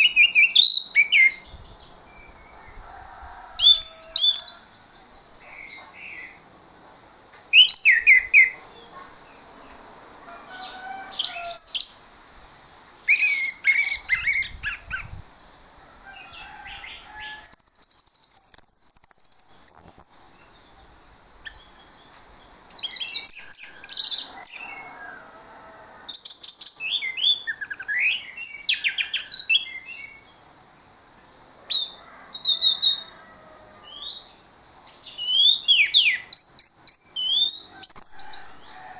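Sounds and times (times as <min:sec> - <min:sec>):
thrush singing whistles and chatter: 0:00.0 - 0:01.7, 0:03.4 - 0:04.7, 0:07.0 - 0:08.6, 0:26.1 - 0:30.1, 0:31.7 - 0:33.2, 0:33.9 - 0:38.9.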